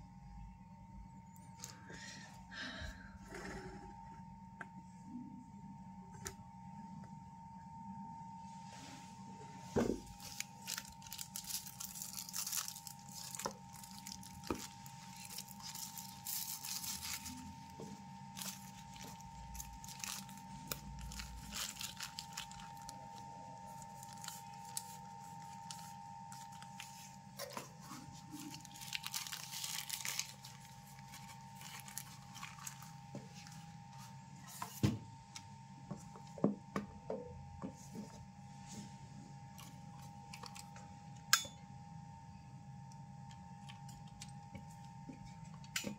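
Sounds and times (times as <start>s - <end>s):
plastic bag crinkling: 10.0s - 33.6s.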